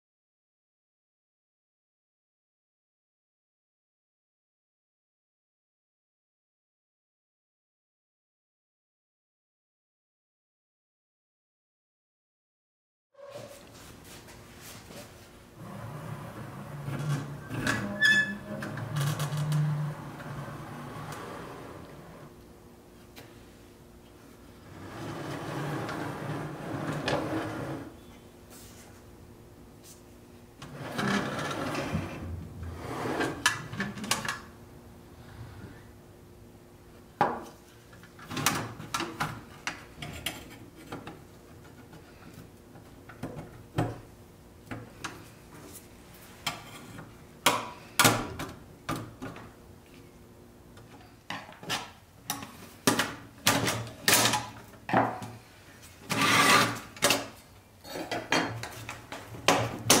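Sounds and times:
metal scraping rub: 0:13.2 - 0:13.9.

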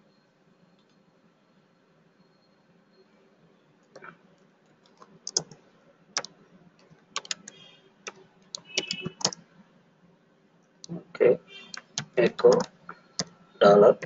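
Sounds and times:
keyboard keystroke clicks: 0:04.9 - 0:05.6, 0:06.2 - 0:09.4, 0:11.7 - 0:13.3.

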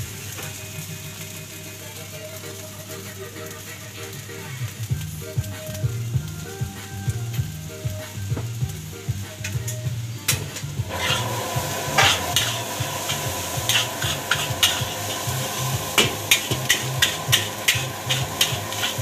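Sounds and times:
background music with bass line: 0:00.0 - 0:19.0
hissing sizzle: 0:00.0 - 0:19.0
metal spatula scraping wok: 0:10.4 - 0:19.0.

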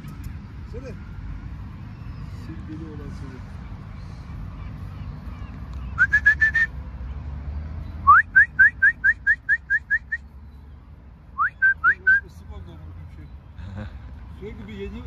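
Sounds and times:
person whistling rising notes: 0:06.0 - 0:06.7.

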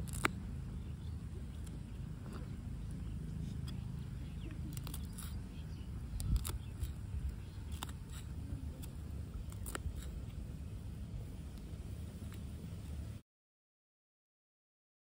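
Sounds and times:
low steady rumble: 0:00.0 - 0:13.2.

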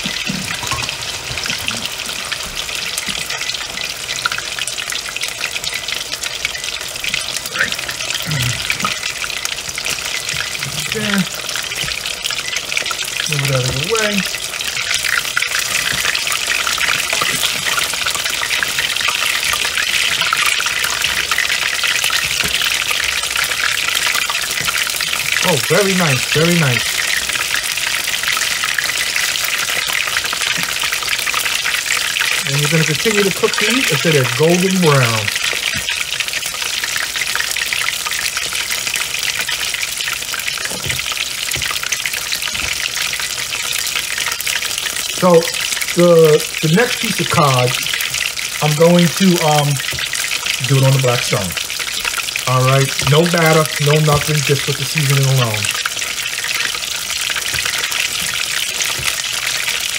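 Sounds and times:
fish frying in hot oil: 0:00.0 - 0:59.9.

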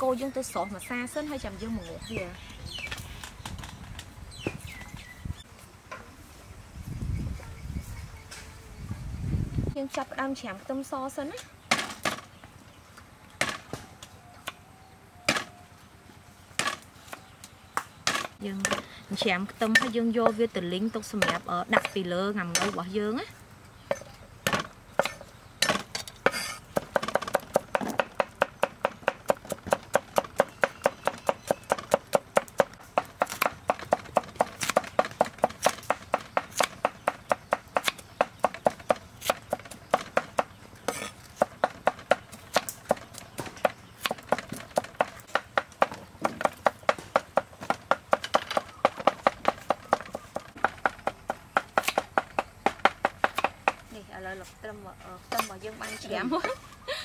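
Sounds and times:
knife chopping on wooden board: 0:23.9 - 0:53.8.

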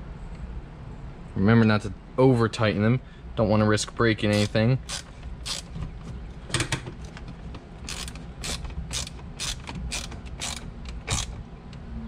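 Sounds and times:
screwdriver ratcheting clicks: 0:04.3 - 0:05.7, 0:07.8 - 0:11.4.

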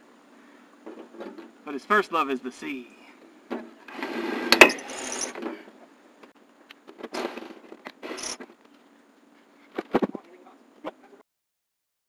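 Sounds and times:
tools and parts clattering: 0:04.5 - 0:05.6, 0:07.0 - 0:08.5.

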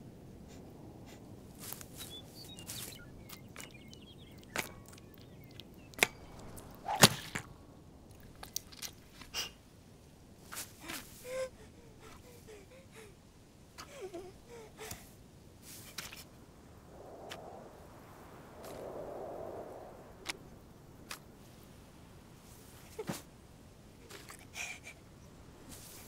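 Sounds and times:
soft outdoor background: 0:00.0 - 0:26.0
nibbling and rustling in grass: 0:01.0 - 0:09.1
quick whoosh: 0:16.7 - 0:20.6.

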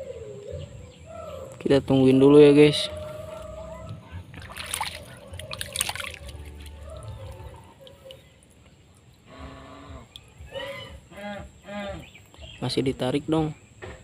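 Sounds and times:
water dribbling: 0:03.3 - 0:09.3
water splashing and gurgling: 0:03.5 - 0:08.6.

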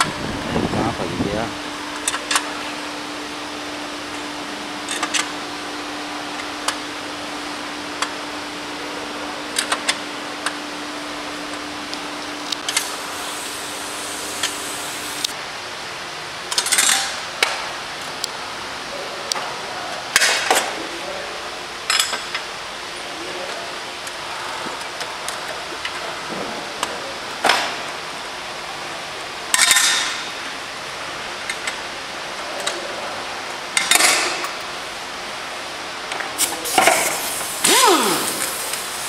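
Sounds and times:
steady workshop hiss: 0:00.0 - 0:39.0
air tool hissing bursts: 0:12.7 - 0:15.3, 0:36.4 - 0:39.0.

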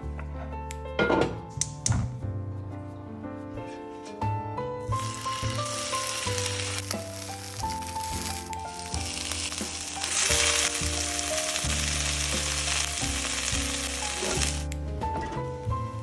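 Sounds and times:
background music: 0:00.0 - 0:16.0
fish sizzling in a skillet: 0:04.9 - 0:14.7.

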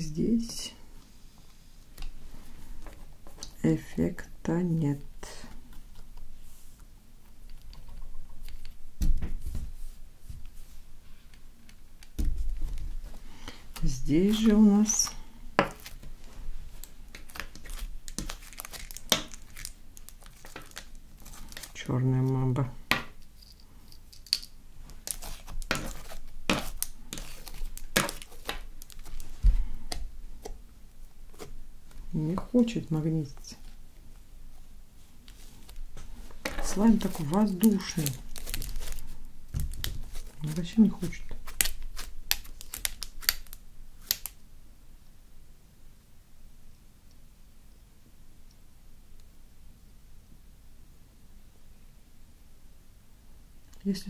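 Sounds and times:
slime crackling and popping: 0:16.8 - 0:21.8, 0:24.3 - 0:29.4, 0:36.8 - 0:44.4.

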